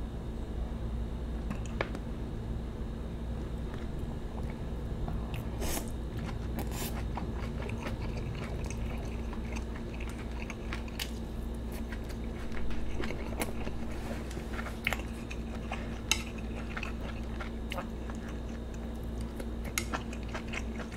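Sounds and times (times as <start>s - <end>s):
mouth clicks and crunches: 5.7s - 20.9s
close chewing: 6.1s - 20.9s.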